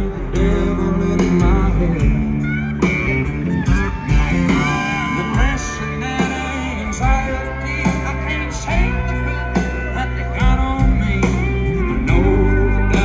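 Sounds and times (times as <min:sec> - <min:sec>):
electric guitar: 0:00.0 - 0:13.0
lead singer singing: 0:00.0 - 0:13.0
live band playing: 0:00.0 - 0:13.0
steady drum beat: 0:00.0 - 0:13.0.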